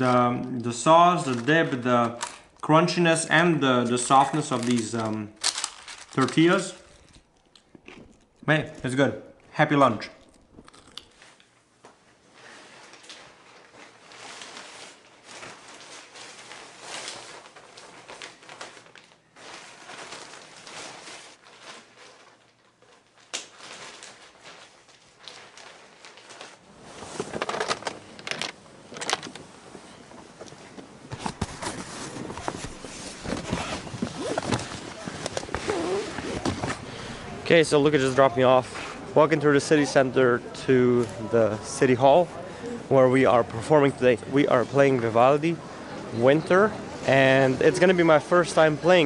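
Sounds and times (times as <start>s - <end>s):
clothes rustling: 4.1s - 7.4s, 11.1s - 37.1s.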